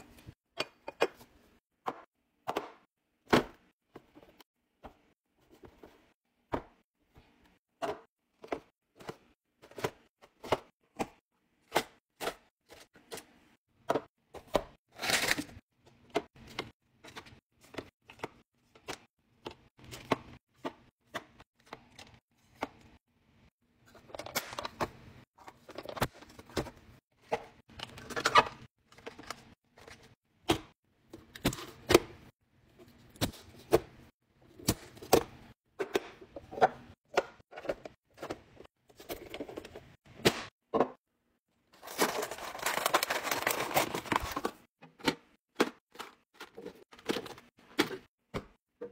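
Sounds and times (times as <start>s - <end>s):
packaging rustling and crinkling: 41.8s - 44.6s.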